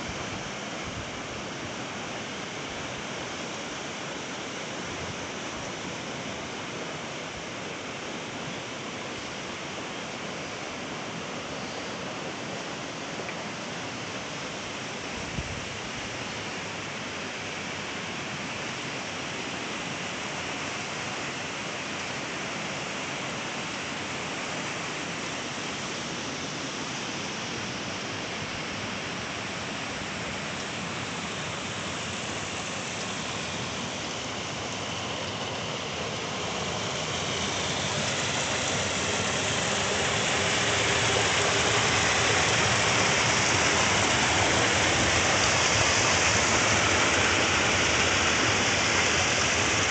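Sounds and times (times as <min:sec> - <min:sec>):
water pouring over weirs: 0:29.6 - 0:49.9.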